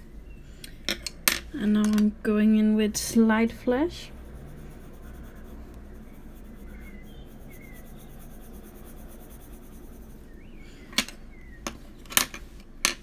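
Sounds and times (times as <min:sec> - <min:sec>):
pencil scratching on paper: 0:03.4 - 0:10.4.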